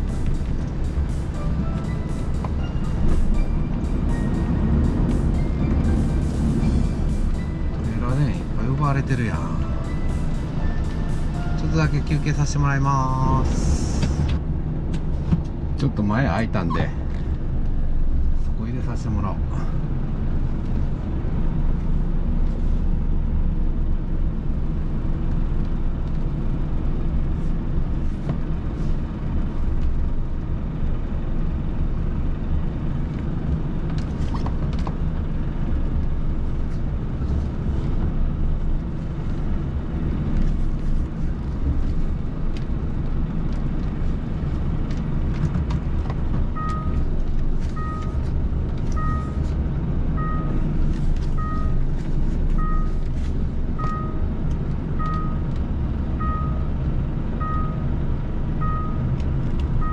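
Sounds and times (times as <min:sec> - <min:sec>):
diesel truck engine running: 0:00.0 - 0:59.9
reversing alarm beeping: 0:01.4 - 0:12.4, 0:46.6 - 0:47.1, 0:47.7 - 0:48.2, 0:49.0 - 0:49.5, 0:50.2 - 0:51.8, 0:52.6 - 0:53.0, 0:53.8 - 0:54.3, 0:55.0 - 0:55.5, 0:56.2 - 0:56.7, 0:57.4 - 0:57.9, 0:58.6 - 0:59.1.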